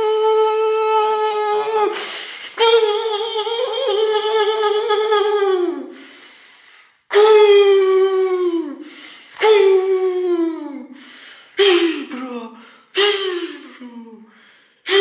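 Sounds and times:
man breathing: 0:01.9 - 0:02.6, 0:05.9 - 0:07.1, 0:08.8 - 0:09.4, 0:10.9 - 0:11.7, 0:12.6 - 0:13.0, 0:14.2 - 0:15.0.

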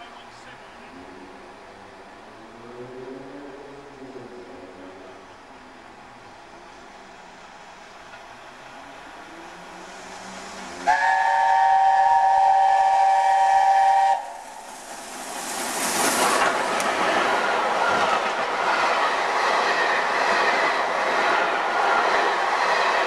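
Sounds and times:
train passing at speed: 0:00.0 - 0:23.0
wheel and rail noise: 0:00.0 - 0:23.0
steam locomotive chime whistle: 0:10.8 - 0:14.6.

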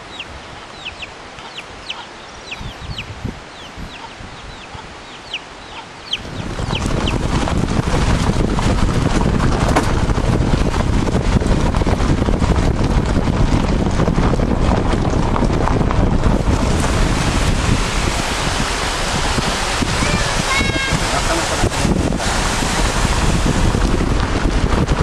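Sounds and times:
chicks peeping: 0:00.0 - 0:08.2
wind buffeting microphone: 0:00.0 - 0:25.0.

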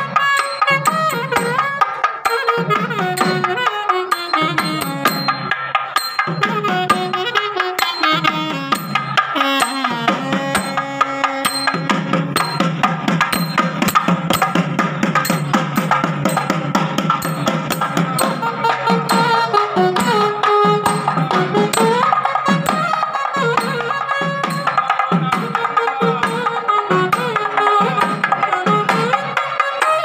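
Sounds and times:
melody instrument: 0:00.0 - 0:24.7
fast barrel drumming: 0:08.3 - 0:26.4.

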